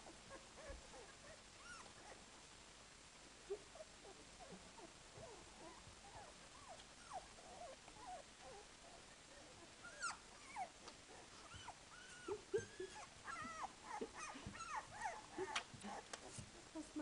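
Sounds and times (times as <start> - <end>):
puppies squeaking and whimpering: 9.9 - 10.7, 11.4 - 15.6.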